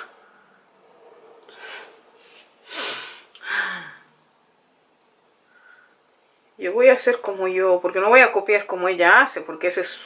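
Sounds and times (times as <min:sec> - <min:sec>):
woman breathing out: 0:01.5 - 0:04.1
woman sighing: 0:02.7 - 0:04.1.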